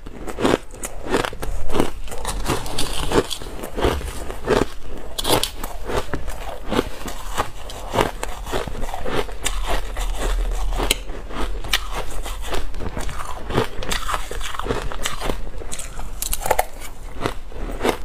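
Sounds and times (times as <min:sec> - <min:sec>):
ice crunching being chewed: 0:00.0 - 0:18.0.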